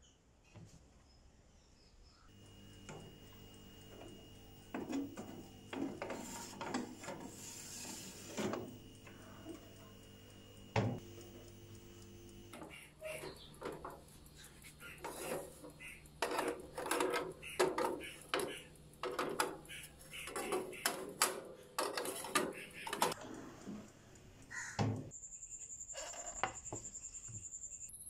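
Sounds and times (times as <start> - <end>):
steady low hum: 2.3 - 25.4
tray scraping: 2.7 - 10.0, 15.0 - 23.9.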